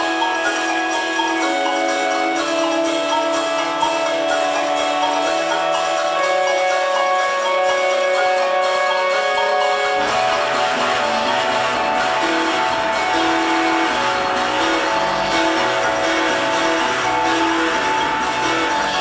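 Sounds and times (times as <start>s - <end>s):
improvised ensemble music: 0.0s - 19.0s.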